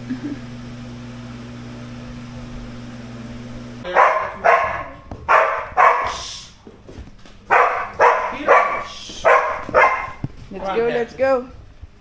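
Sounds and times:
dog barking: 0:03.8 - 0:06.3, 0:07.5 - 0:10.2.

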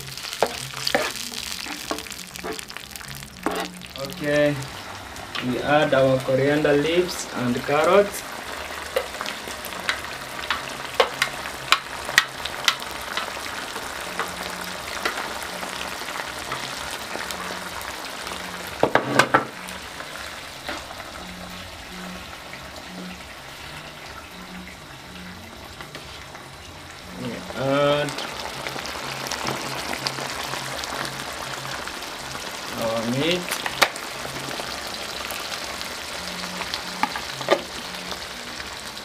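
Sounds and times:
sauce sizzling in a frying pan: 0:00.0 - 0:39.0
plastic spoon scraping a pan: 0:00.4 - 0:02.7, 0:03.4 - 0:03.8.

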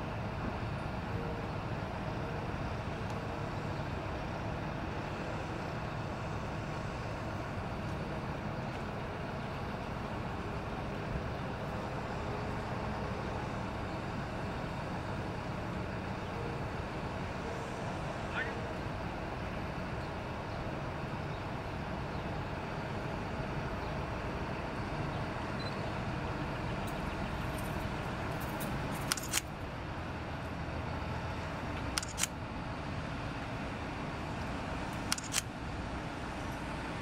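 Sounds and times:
diesel engine running: 0:00.0 - 0:37.0.

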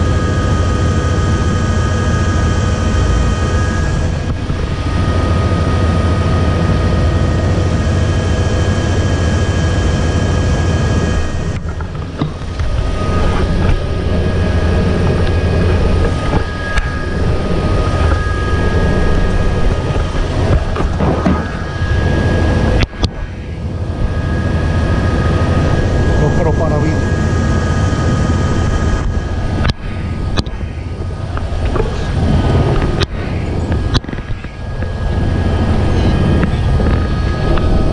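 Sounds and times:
helicopter rotor rumble: 0:00.0 - 0:37.9
high turbine whine: 0:00.0 - 0:37.9.

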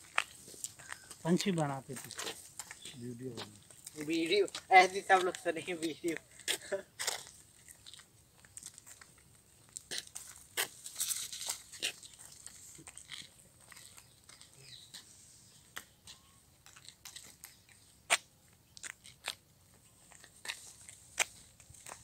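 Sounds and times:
crunching and crackling clicks: 0:00.0 - 0:14.5, 0:15.7 - 0:22.0
rustling: 0:10.0 - 0:14.1.

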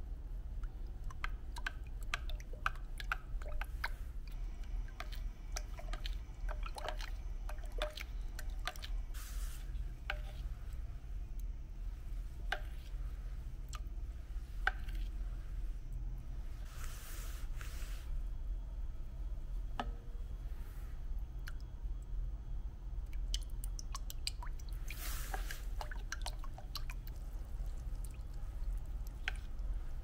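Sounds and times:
steady low hum: 0:00.0 - 0:30.0
water sloshing: 0:00.7 - 0:10.9.

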